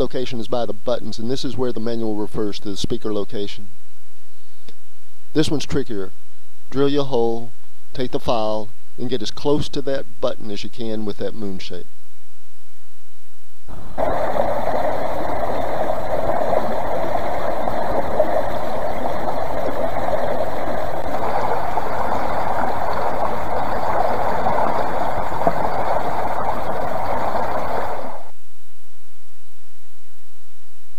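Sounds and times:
creek water rushing over log: 0:14.0 - 0:28.3.

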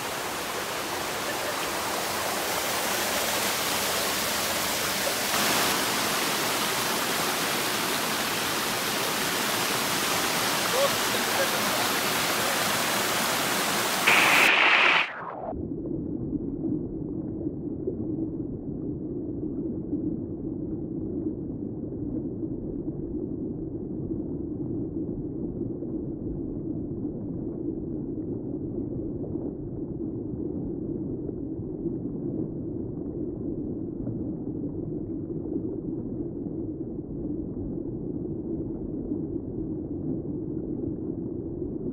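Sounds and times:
water rushing over rocks: 0:00.0 - 0:15.4.

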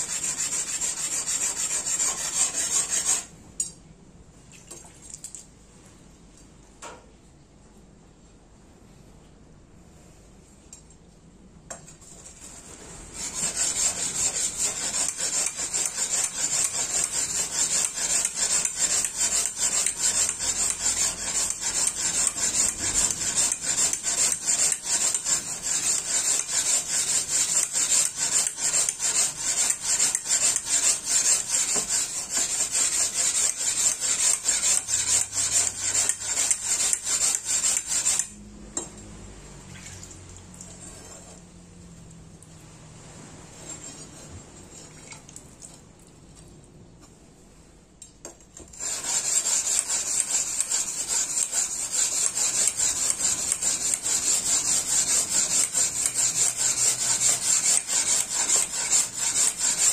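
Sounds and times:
blade sharpening on whetstone: 0:00.0 - 0:03.3, 0:13.2 - 0:38.4, 0:43.6 - 0:44.8, 0:48.7 - 0:59.9.

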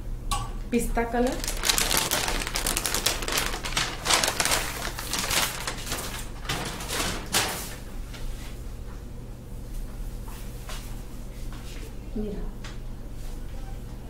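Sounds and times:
fabric rustling: 0:01.4 - 0:07.0.

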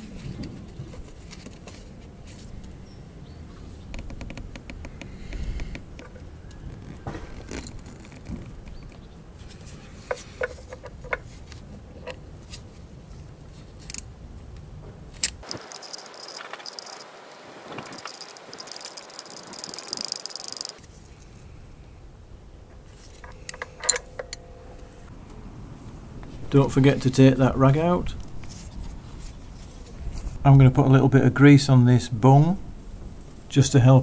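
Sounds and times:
metallic clicks of tools handled: 0:15.2 - 0:17.1, 0:17.8 - 0:20.8, 0:23.1 - 0:24.5
socket ratchet clicking rapidly: 0:15.4 - 0:17.1, 0:17.8 - 0:20.8.

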